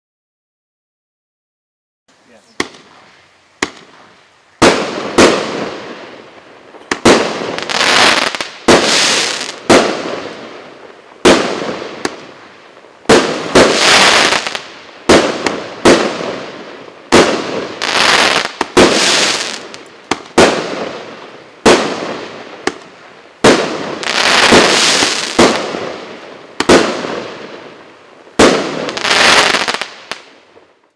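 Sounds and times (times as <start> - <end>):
firework cake bangs: 26.6 - 27.3.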